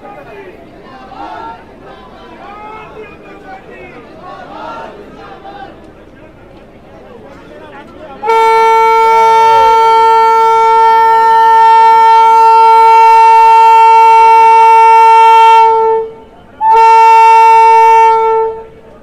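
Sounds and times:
train horn blast: 8.2s - 19.0s.

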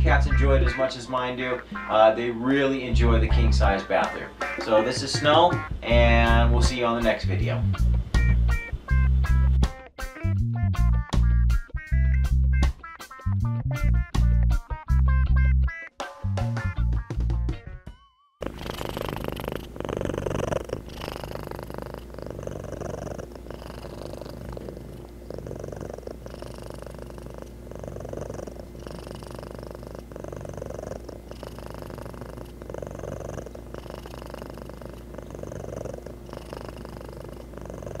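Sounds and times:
cat purring: 18.4s - 38.0s.

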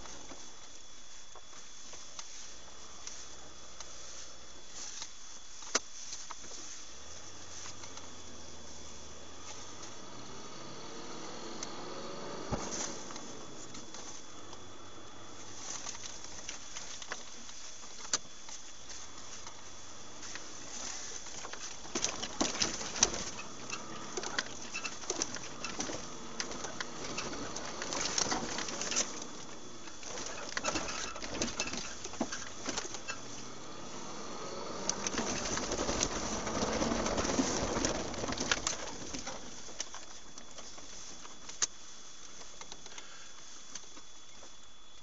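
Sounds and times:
clicks and rattles in vehicle cab: 12.5s - 45.0s.

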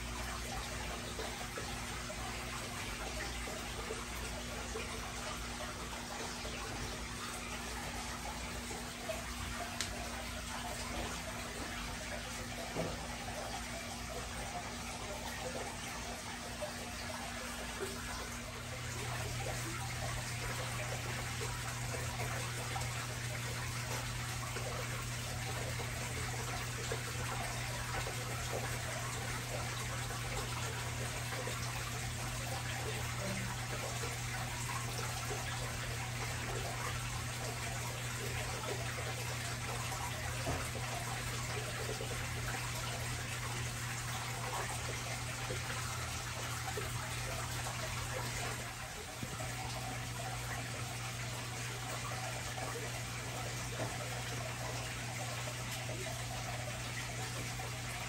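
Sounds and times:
water rushing and trickling: 0.0s - 58.0s.

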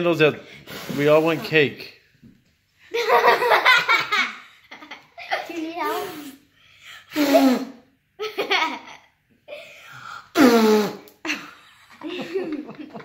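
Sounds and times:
laughter: 2.9s - 5.4s, 8.2s - 9.2s, 11.2s - 13.0s.

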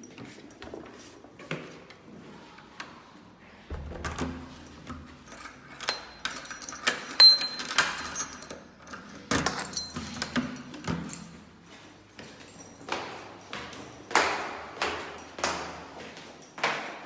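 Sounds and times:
lock and handle clicking: 3.7s - 10.8s
keys jangling: 5.2s - 11.6s
key turning in door lock: 5.3s - 11.3s.

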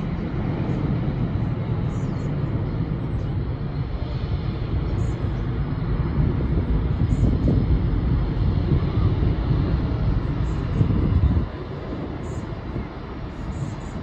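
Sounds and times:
jet engines rumbling: 0.0s - 14.0s.

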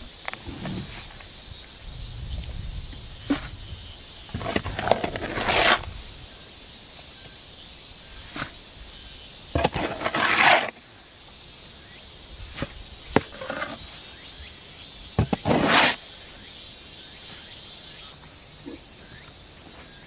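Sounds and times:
shovel scraping mortar: 4.3s - 5.9s, 8.2s - 8.6s, 9.5s - 10.8s, 12.4s - 14.0s, 15.2s - 16.0s.

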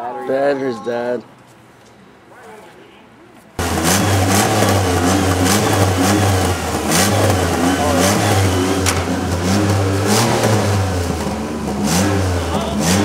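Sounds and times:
car engine revving: 3.6s - 13.0s.

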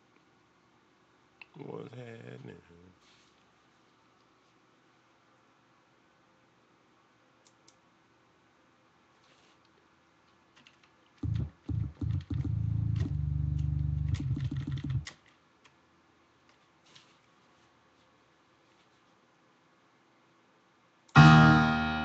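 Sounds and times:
computer keyboard and mouse clicks: 7.4s - 7.8s, 10.3s - 15.8s.

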